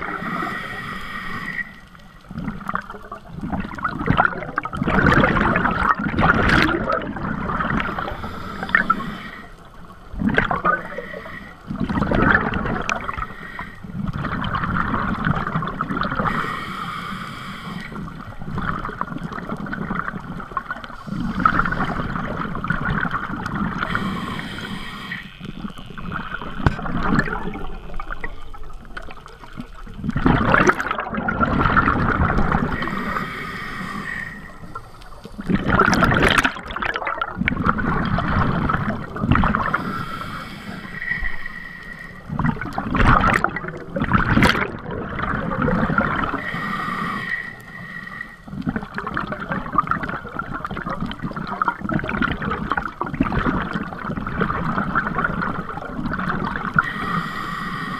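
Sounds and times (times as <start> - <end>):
regulator inhale hiss: 0.0 - 2.3, 7.8 - 10.0, 10.7 - 11.8, 12.9 - 14.0, 16.2 - 18.5, 20.8 - 22.5, 23.7 - 25.8, 32.6 - 35.6, 39.5 - 42.4, 46.2 - 48.9, 56.7 - 57.9
rush of exhaled bubbles: 2.3 - 9.4, 10.1 - 16.7, 17.7 - 24.8, 26.1 - 41.5, 42.1 - 57.9.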